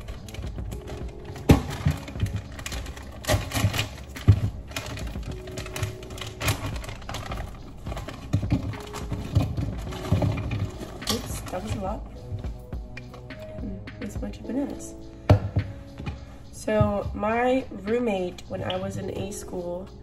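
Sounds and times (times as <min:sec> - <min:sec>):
frozen fruit clattering into blender: 0:00.0 - 0:12.0.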